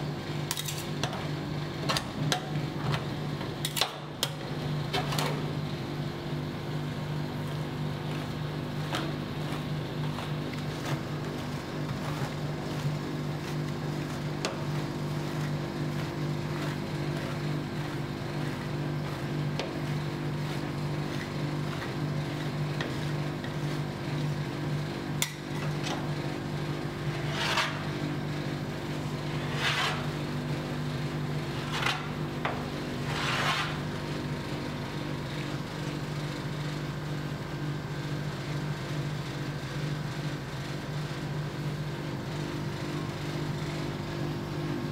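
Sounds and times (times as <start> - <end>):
steady low hum: 0.0 - 36.5
metal spatulas scraping and tapping: 0.5 - 1.2.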